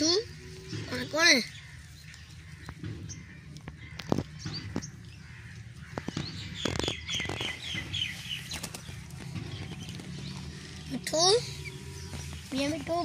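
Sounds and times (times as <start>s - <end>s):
parakeets chirping: 0.0s - 13.0s
wings flapping: 5.9s - 10.3s.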